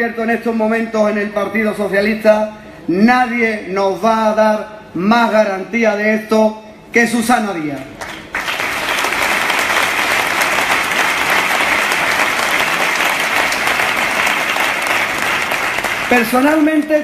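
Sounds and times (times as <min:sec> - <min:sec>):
audience applauding: 0:08.0 - 0:16.9.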